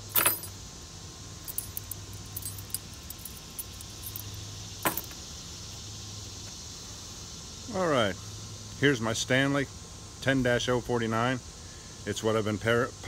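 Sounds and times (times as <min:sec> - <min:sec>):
keys clattering onto wooden board: 0:00.0 - 0:00.6, 0:01.4 - 0:05.2
keys jingling: 0:00.0 - 0:00.6, 0:01.4 - 0:05.2.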